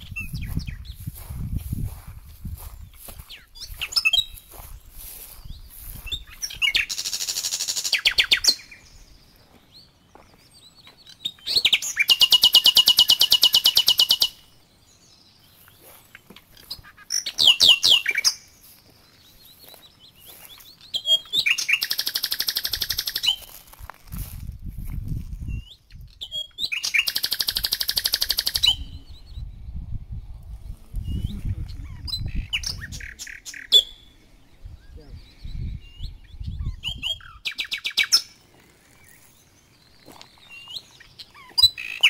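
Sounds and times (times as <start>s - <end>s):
wild birds chirping: 0.0s - 24.3s, 25.4s - 42.0s
fast rattling bird trills: 20.3s - 23.6s, 26.2s - 28.9s.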